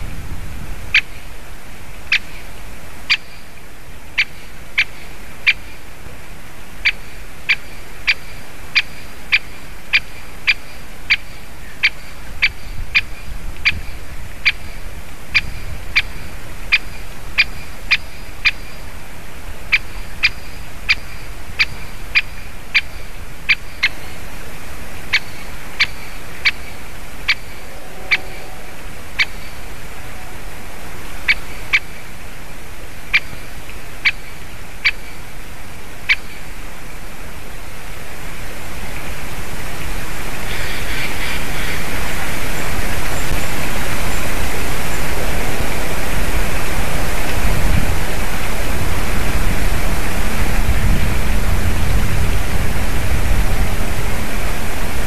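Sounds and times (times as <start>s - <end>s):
background hiss: 0.0s - 55.0s
woodpecker call: 3.1s - 3.5s, 6.8s - 18.9s, 19.7s - 24.2s, 25.1s - 30.4s, 31.2s - 32.0s, 40.4s - 42.2s.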